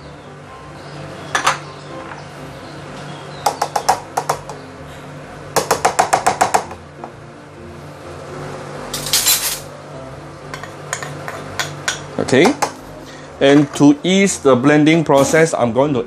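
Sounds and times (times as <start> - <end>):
spoon tapping on a dish: 3.4 - 4.6, 10.5 - 12.8
spoon scraping: 9.0 - 9.7.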